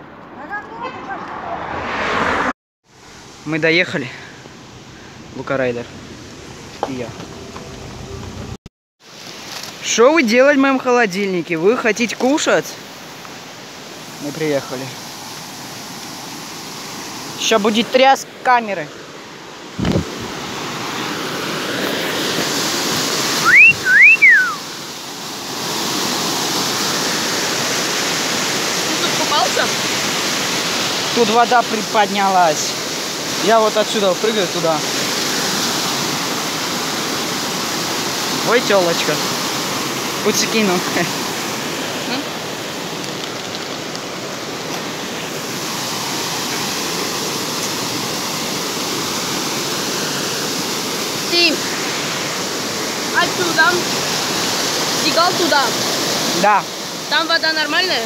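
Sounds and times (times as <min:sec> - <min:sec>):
camera handling bump: 0:19.8 - 0:20.2
person whistling: 0:23.4 - 0:24.6
waterfall pouring into a pool: 0:24.6 - 0:58.0.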